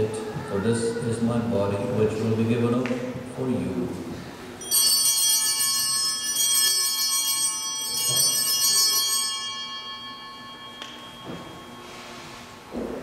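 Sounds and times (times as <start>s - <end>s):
altar bells ringing: 4.6s - 12.6s.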